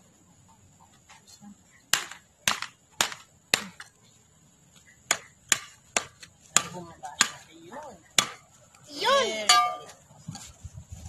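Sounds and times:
hammer striking metal edging: 9.5s - 10.0s.

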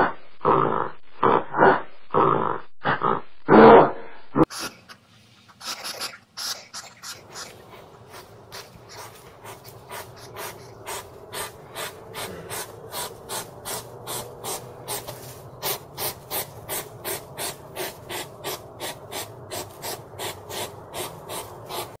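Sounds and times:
hedgehog sniffing and snuffling: 4.5s - 22.0s.

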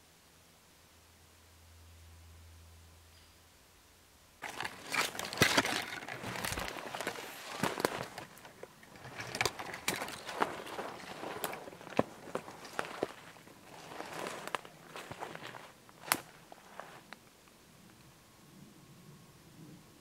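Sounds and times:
footsteps crunching dry leaves: 4.4s - 17.2s.

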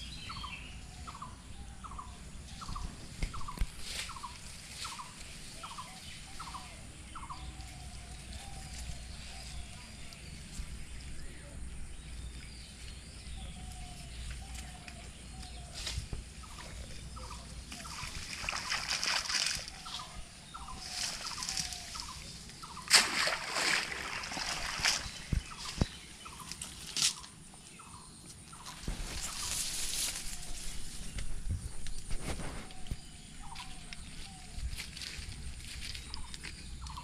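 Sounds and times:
bird calling: 0.0s - 35.1s
water sloshing and dripping: 17.7s - 19.8s, 22.9s - 25.9s
water splashes: 17.8s - 20.1s, 22.8s - 25.9s.

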